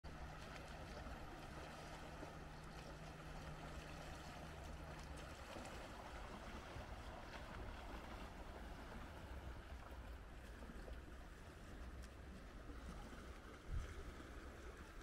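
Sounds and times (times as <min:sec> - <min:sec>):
steady low hum: 0:00.1 - 0:15.0
waves lapping against rocks: 0:00.1 - 0:15.0.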